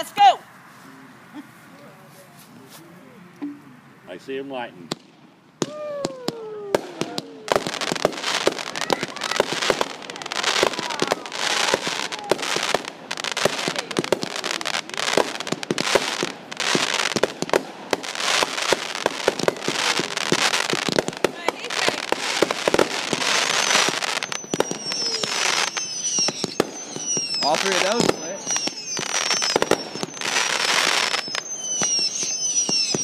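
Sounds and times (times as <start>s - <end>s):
firework bangs: 4.8s - 33.0s
firework crackling: 4.9s - 33.0s
falling whistle: 23.2s - 33.0s.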